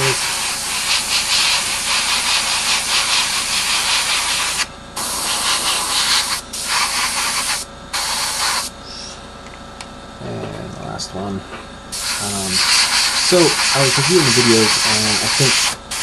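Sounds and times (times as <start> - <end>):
airbrush spraying hiss: 0.0 - 9.2, 11.9 - 16.0.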